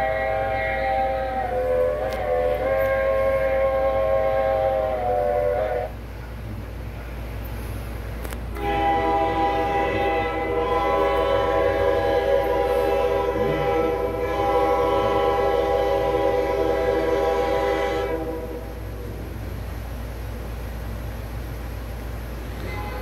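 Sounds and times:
train whistle chord: 0.0s - 6.0s, 8.5s - 19.0s, 22.6s - 23.0s
locomotive air horn: 0.0s - 6.1s, 8.5s - 19.0s, 22.6s - 23.0s.

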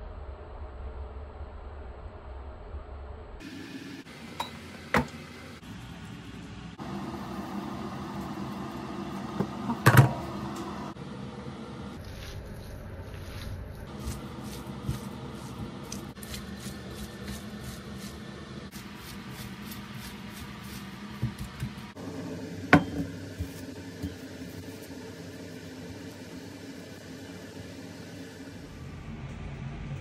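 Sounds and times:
food squishing and clicks: 12.0s - 18.1s.

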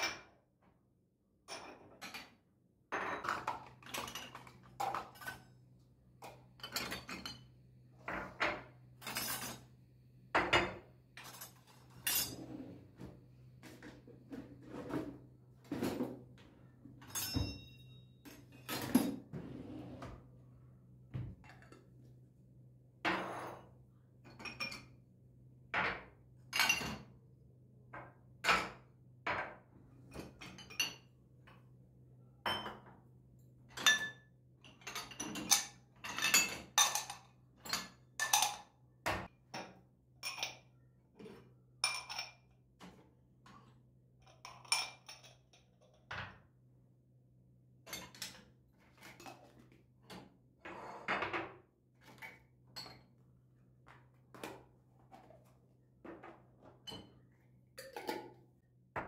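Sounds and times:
glassware clinking: 17.1s - 18.5s.

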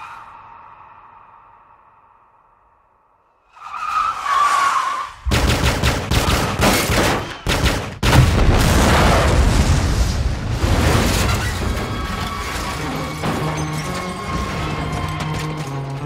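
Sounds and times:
rapid handgun gunfire: 5.3s - 8.3s
car explosion blast: 8.0s - 13.5s.

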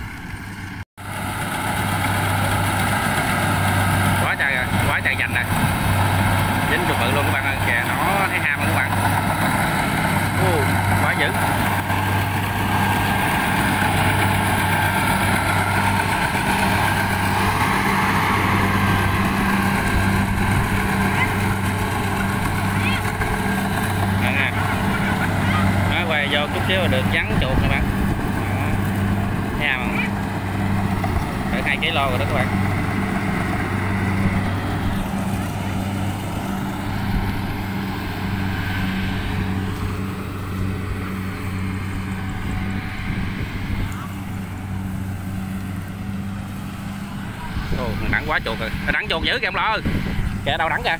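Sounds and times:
combine harvester engine hum: 0.0s - 50.9s
wind rumbling on microphone: 18.4s - 21.1s, 27.0s - 29.6s, 37.0s - 45.4s, 47.3s - 50.9s.

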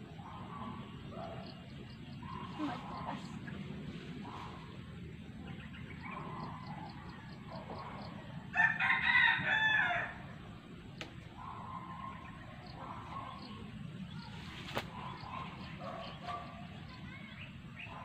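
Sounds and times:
outdoor background noise: 0.0s - 18.0s
rooster crowing: 8.5s - 10.2s.

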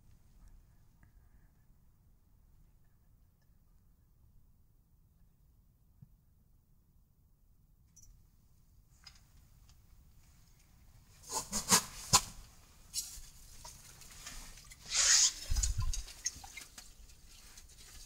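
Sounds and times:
rustling scrape: 11.2s - 18.0s.

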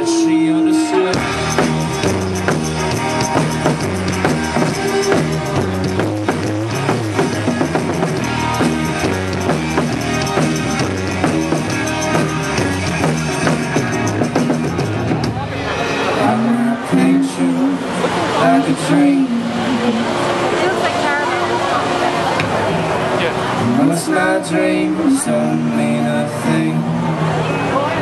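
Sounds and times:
bass line: 0.0s - 28.0s
electric guitar: 0.0s - 28.0s
drum kit steady beat: 1.2s - 15.4s.

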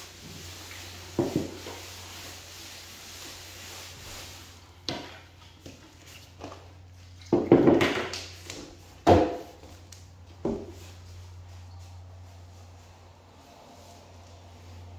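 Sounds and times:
knocks on wooden floor: 9.0s - 9.5s.

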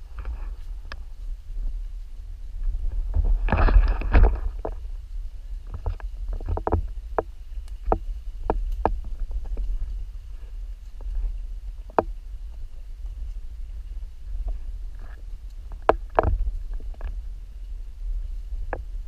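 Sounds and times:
footsteps on dirt trail: 0.0s - 19.0s
wind rumble on microphone: 0.0s - 19.0s.

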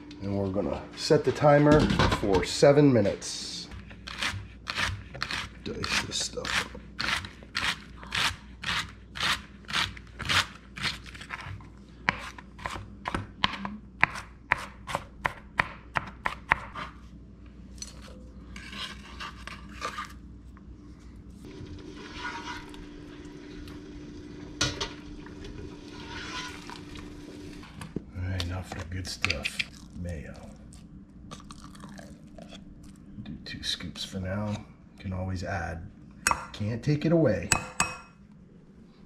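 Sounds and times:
steady low hum: 0.0s - 39.0s
knife scraping board: 4.0s - 12.8s, 18.5s - 20.2s, 22.0s - 22.8s, 25.9s - 26.8s.

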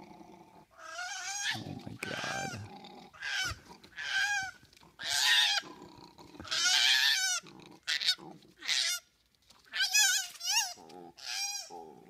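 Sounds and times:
koala squealing calls: 0.8s - 2.6s, 3.2s - 5.6s
koala rasping sounds: 1.1s - 5.7s.

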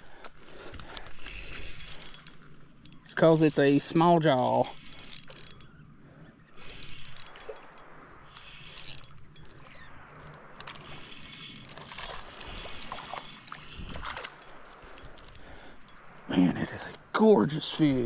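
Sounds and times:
fishing tackle clicks and taps: 1.6s - 5.7s, 6.6s - 16.2s.

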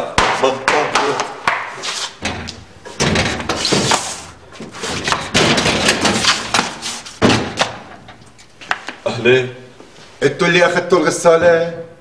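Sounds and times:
door scraping: 1.7s - 8.2s
knocking on metal door: 2.2s - 3.6s, 5.0s - 6.2s, 7.2s - 7.9s
sheet-metal door rattling and banging: 2.2s - 4.0s, 4.8s - 8.2s.

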